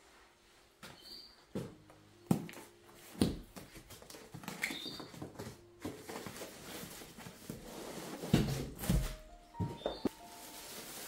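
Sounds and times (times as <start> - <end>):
cardboard and plastic rustling: 2.4 - 11.0.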